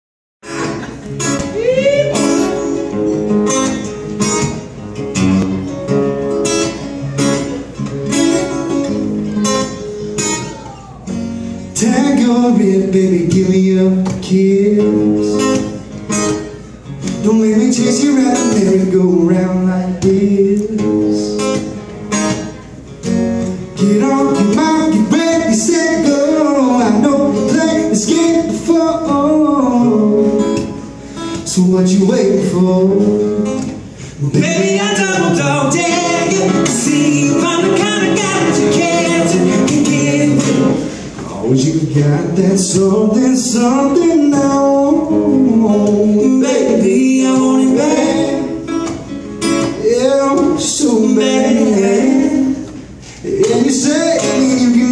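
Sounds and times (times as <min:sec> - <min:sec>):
acoustic guitars strumming: 0:00.4 - 0:54.9
man singing: 0:11.7 - 0:15.8, 0:17.1 - 0:21.7, 0:23.6 - 0:30.8, 0:31.4 - 0:48.8, 0:49.7 - 0:54.9.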